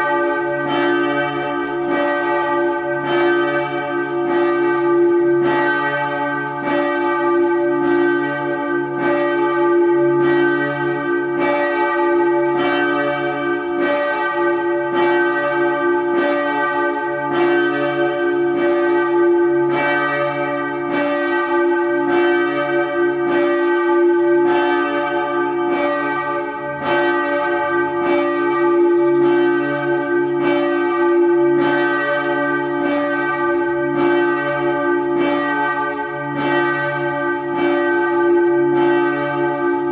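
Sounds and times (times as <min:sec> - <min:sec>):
church bells pealing: 0:00.0 - 0:39.9.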